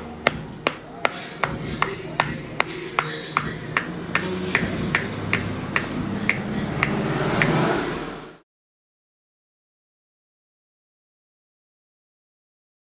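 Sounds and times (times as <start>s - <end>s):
mallet knocking on metal: 0.2s - 7.6s.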